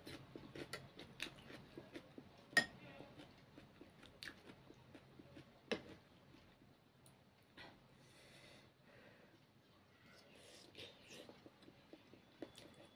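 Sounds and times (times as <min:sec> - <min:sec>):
person chewing: 0:00.0 - 0:02.5, 0:03.1 - 0:06.7, 0:10.5 - 0:12.9.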